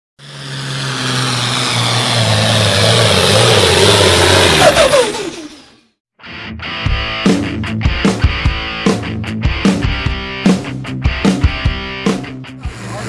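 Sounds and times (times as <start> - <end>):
tractor engine under load: 0.2 - 5.8.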